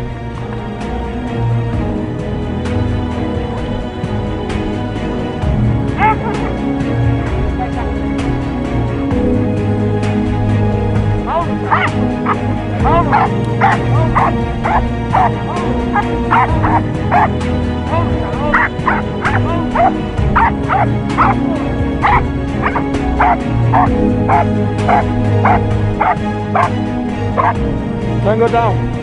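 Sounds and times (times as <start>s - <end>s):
background music: 0.0s - 29.0s
dog barking: 11.6s - 17.3s, 18.5s - 21.4s, 22.0s - 26.8s, 27.4s - 27.6s.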